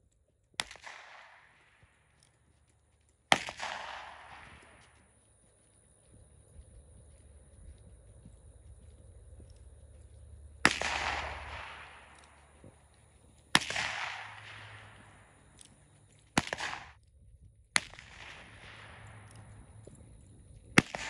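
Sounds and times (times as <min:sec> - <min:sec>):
handgun shots with echo: 0:03.3 - 0:04.7, 0:10.6 - 0:12.4, 0:13.5 - 0:15.2, 0:16.4 - 0:16.9, 0:20.8 - 0:21.0.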